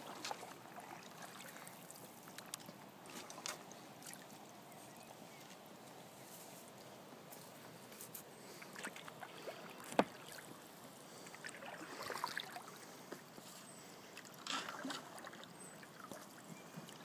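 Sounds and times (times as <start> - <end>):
oars splashing in water: 0.0 - 5.0, 8.5 - 13.3, 14.1 - 17.0.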